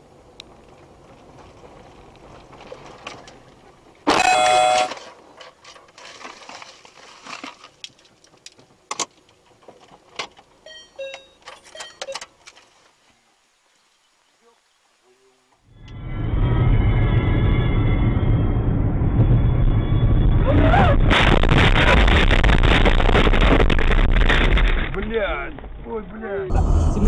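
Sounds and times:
car engine rumbling: 0:00.0 - 0:06.2, 0:15.5 - 0:27.0
car crash: 0:04.0 - 0:07.6, 0:16.0 - 0:25.8
car horn blast: 0:04.1 - 0:05.0
short beeps: 0:04.1 - 0:05.0, 0:10.6 - 0:12.2.

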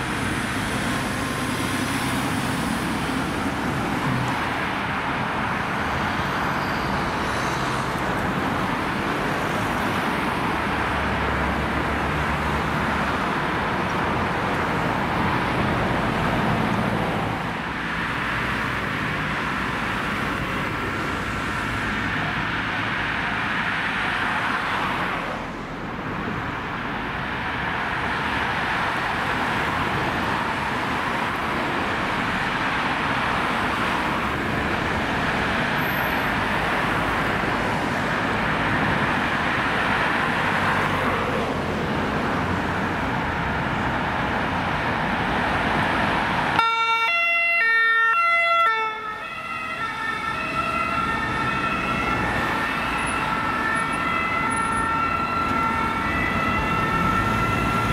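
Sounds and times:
passing cars: 0:00.0 - 0:57.9
two-tone ambulance siren: 0:46.4 - 0:57.9.

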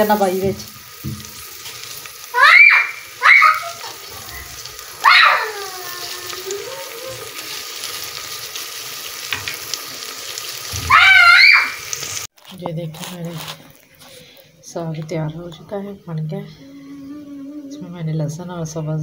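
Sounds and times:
paste sizzling in oil: 0:00.0 - 0:14.5
child crying out: 0:02.3 - 0:07.6, 0:10.7 - 0:11.9.

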